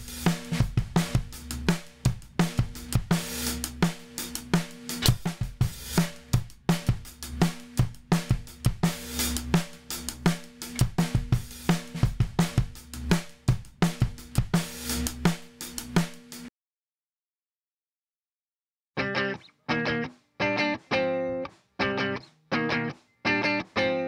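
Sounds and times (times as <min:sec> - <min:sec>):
drum kit playing a groove: 0:00.0 - 0:16.5, 0:19.9 - 0:24.0.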